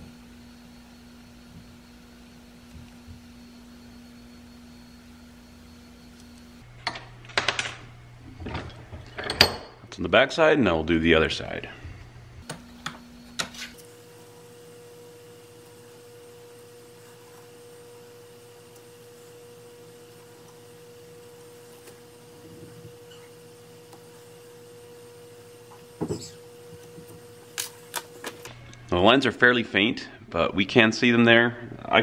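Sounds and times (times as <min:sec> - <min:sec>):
faint hum-like tone: 0:00.0 - 0:32.0.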